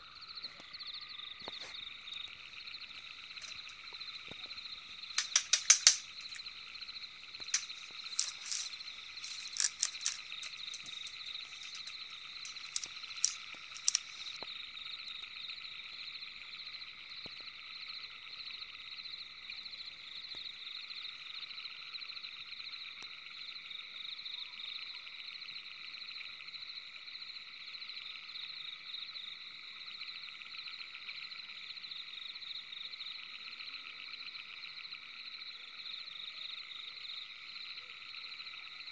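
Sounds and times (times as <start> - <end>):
frogs calling: 0.0 - 23.7
sharp clicks: 3.4 - 6.5, 7.4 - 14.4.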